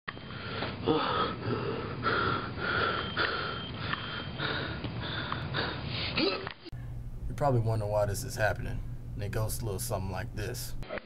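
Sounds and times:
person breathing heavily: 0.2 - 6.3.

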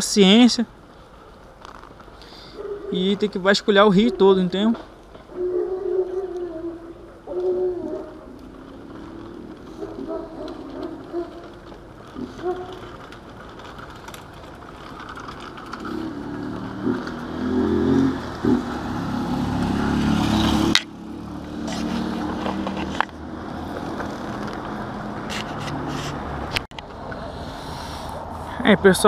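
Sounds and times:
faint steady rumble: 0.7 - 20.1
vehicle engine approaching: 2.8 - 29.0.

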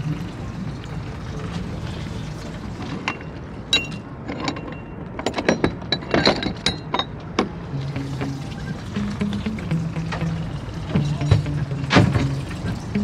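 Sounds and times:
background music with held notes: 7.6 - 13.0.

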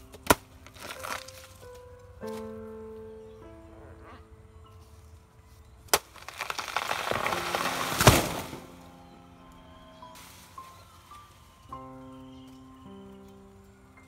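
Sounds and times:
sharp crack: 0.0 - 2.5, 5.9 - 8.9
crackling and tearing: 0.0 - 2.6, 5.9 - 8.8
background music: 0.0 - 14.0.

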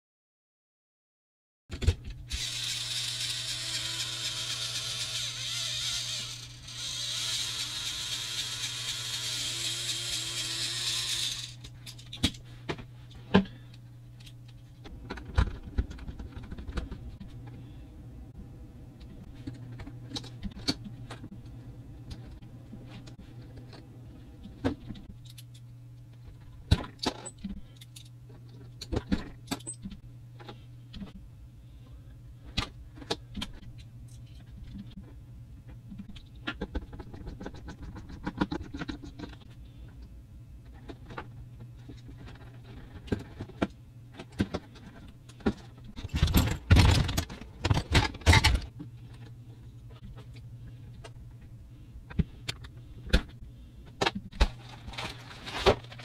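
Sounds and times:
plastic parts rattling and clattering: 41.8 - 49.2, 54.0 - 56.0.

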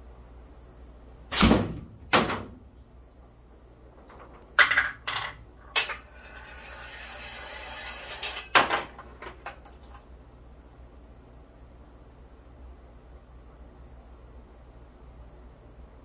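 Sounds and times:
rolling rattle: 3.9 - 9.6
steel balls clanking on metal: 4.1 - 9.0.

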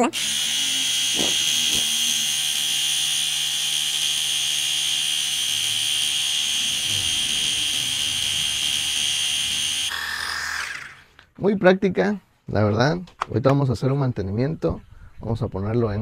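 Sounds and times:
pressure washer pump whine: 0.0 - 11.2.

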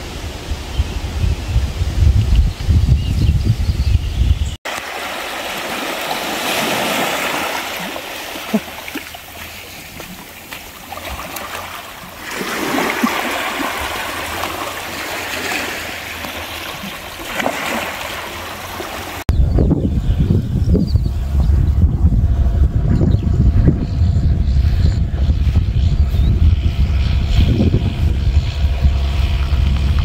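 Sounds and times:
wind rumble on microphone: 0.0 - 4.6, 18.4 - 30.0
small waves lapping over rocks: 4.7 - 19.2.

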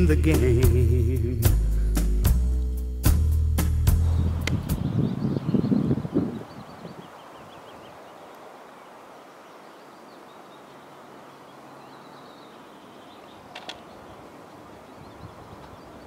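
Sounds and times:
birds chirping faintly: 3.9 - 16.0.

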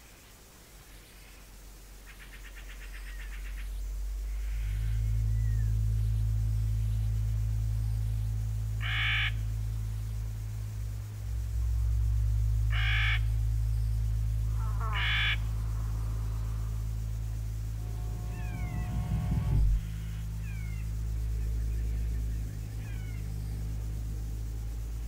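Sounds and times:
low drone of held tones: 2.8 - 25.0
harsh animal calls: 14.5 - 16.9.

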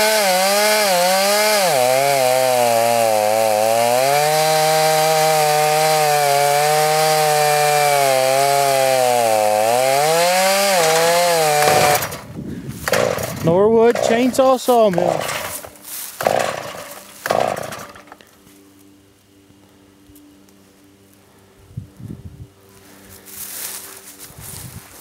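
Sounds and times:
chainsaw ripping through a log: 0.0 - 18.2.

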